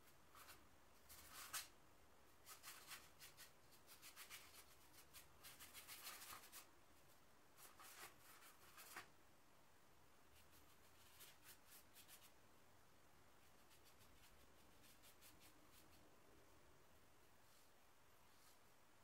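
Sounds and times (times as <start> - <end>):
paintbrush strokes on canvas: 13.4 - 16.1, 17.3 - 18.8.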